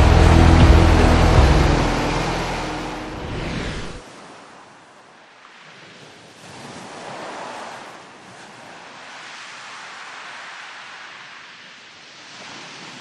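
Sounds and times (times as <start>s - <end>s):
truck engine running low: 0.0s - 4.0s
wind and water noise: 0.0s - 13.0s.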